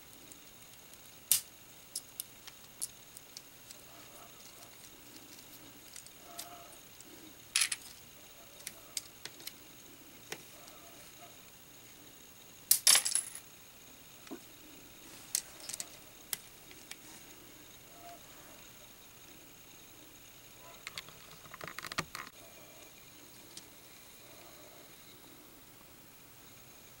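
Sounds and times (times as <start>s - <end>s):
plastic bricks clicking: 20.8s - 22.3s.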